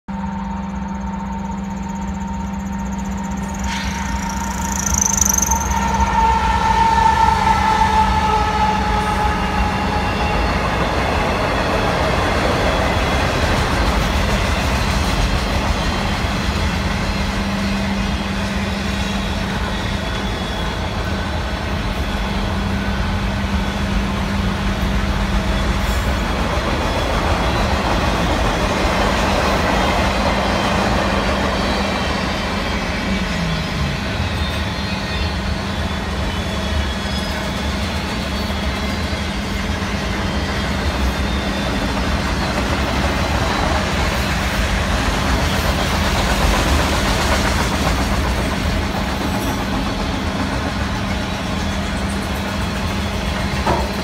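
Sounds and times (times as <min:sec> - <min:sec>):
train wheels rumbling on rails: 0:00.0 - 0:54.0
locomotive horn tones: 0:03.3 - 0:10.9.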